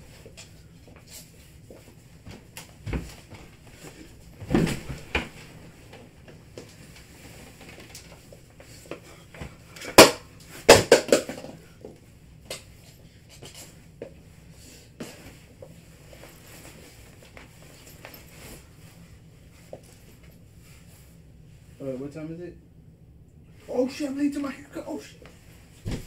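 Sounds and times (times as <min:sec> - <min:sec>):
bedding rustling: 0:00.0 - 0:10.8, 0:11.6 - 0:22.1, 0:23.5 - 0:26.0.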